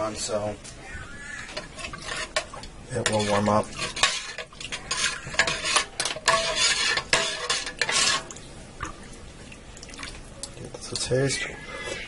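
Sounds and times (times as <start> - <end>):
spoon stirring in metal pot: 1.3 - 9.0.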